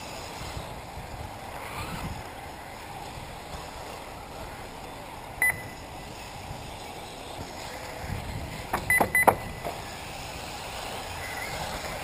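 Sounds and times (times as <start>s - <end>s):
steady background noise: 0.0s - 12.0s
short electronic beeps: 5.4s - 5.8s, 8.8s - 9.6s.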